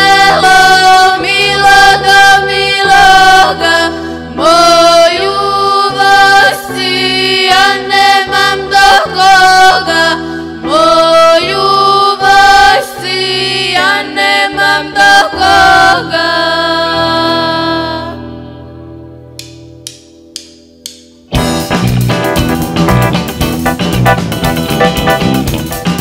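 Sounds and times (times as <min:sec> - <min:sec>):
women singing folk song: 0:00.0 - 0:18.4
folk-rock band sustained notes: 0:21.3 - 0:26.0.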